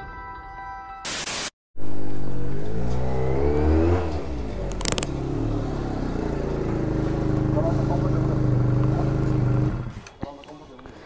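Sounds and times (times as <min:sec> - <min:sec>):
motorcycle engine revving and idling: 0:01.8 - 0:10.2.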